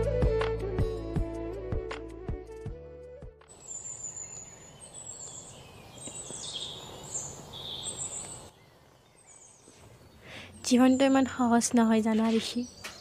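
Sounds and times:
high bird chirps: 3.6 - 11.3
steady background hiss: 3.6 - 11.6.

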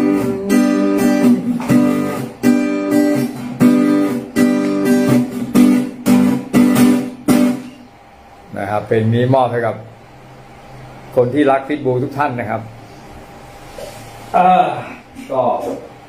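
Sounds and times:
acoustic guitar strumming: 0.0 - 8.2.

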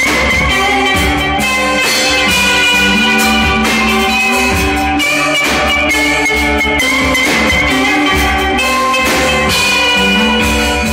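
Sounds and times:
drum kit beating steadily: 0.0 - 10.9
electric guitars bending notes: 0.0 - 10.9.

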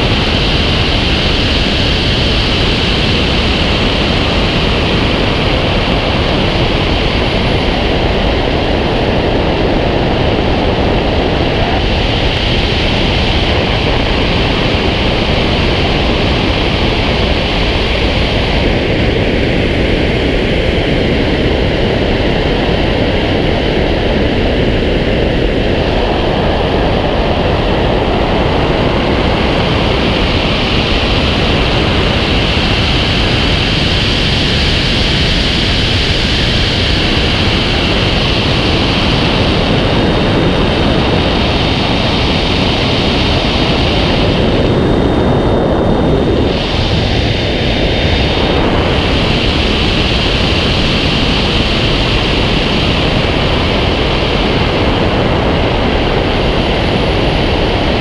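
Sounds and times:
airflow rushing over camera: 0.0 - 58.0.

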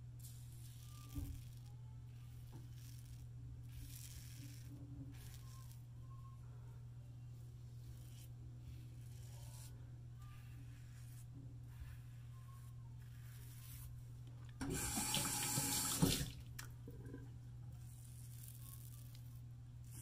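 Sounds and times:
razor scraping stubble: 0.2 - 6.2, 7.7 - 14.0, 17.7 - 20.0
tap water running into sink: 14.6 - 16.4.

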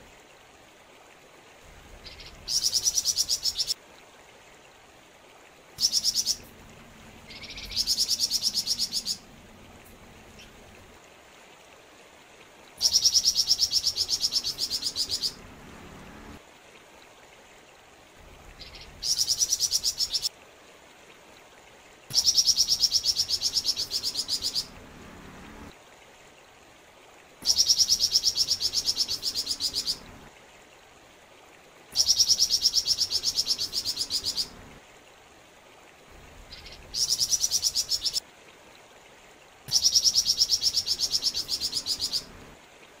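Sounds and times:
songbird fast trilled song: 2.0 - 3.8, 5.8 - 6.4, 7.3 - 9.2, 12.8 - 15.4, 18.6 - 20.3, 22.1 - 24.8, 27.4 - 30.0, 32.0 - 34.6, 36.5 - 38.2, 39.7 - 42.3.

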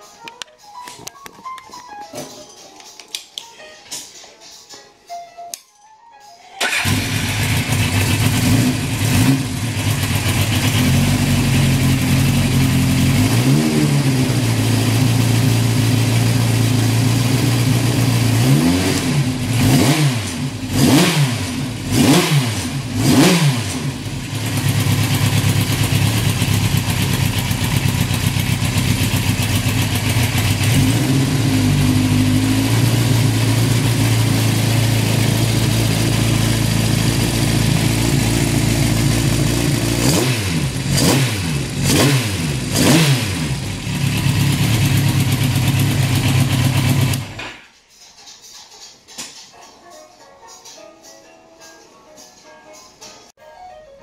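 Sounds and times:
motorcycle engine idling: 6.6 - 18.4, 23.8 - 41.9, 42.5 - 47.4
motorcycle engine revving: 6.6 - 47.6.

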